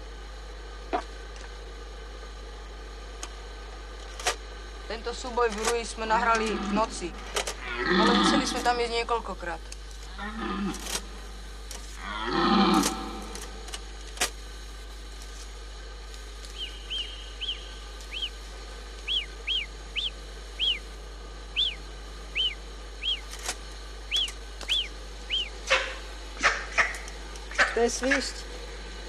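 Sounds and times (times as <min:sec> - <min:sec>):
deer stag roaring: 0:06.3 - 0:08.8, 0:10.1 - 0:11.4, 0:12.0 - 0:13.7
marmot chirping whistles: 0:16.6 - 0:18.4, 0:19.0 - 0:20.9, 0:21.5 - 0:23.3, 0:24.1 - 0:26.9.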